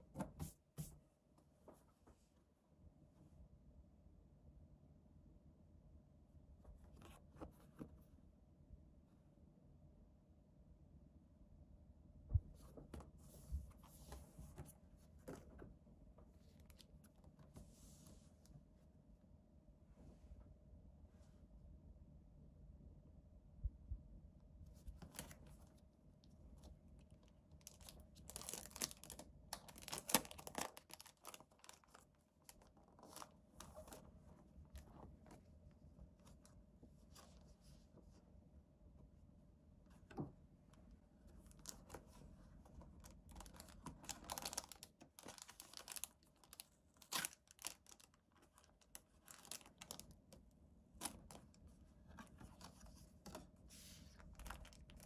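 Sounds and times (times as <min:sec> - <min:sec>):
plastic packaging crinkling: 0:27.6 - 0:34.1, 0:43.0 - 0:50.1, 0:51.0 - 0:53.4, 0:54.1 - 0:55.0.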